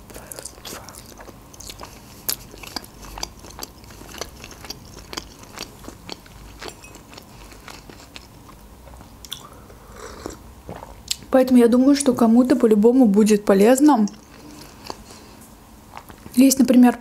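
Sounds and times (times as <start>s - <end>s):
chewing with wet smacks and crunches: 0.1s - 9.5s, 14.0s - 15.3s.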